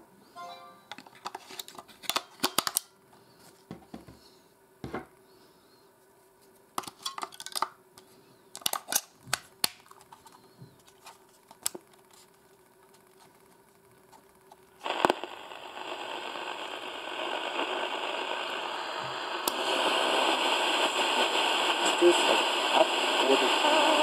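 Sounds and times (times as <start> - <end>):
batteries clicking into compartment: 8.6 - 10.4.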